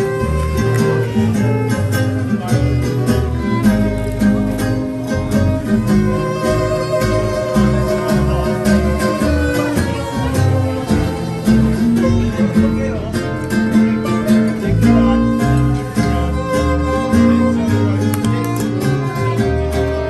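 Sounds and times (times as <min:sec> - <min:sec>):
acoustic guitars: 0:00.0 - 0:20.0
bass line: 0:00.0 - 0:20.0
bowed fiddle: 0:00.0 - 0:20.0.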